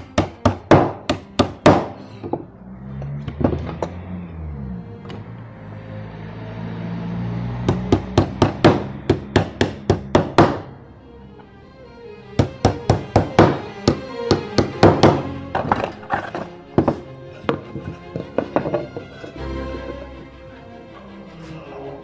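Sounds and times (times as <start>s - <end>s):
small hammer striking wooden board: 0.0s - 2.4s, 7.6s - 10.7s, 12.4s - 19.1s
background music: 0.0s - 22.0s.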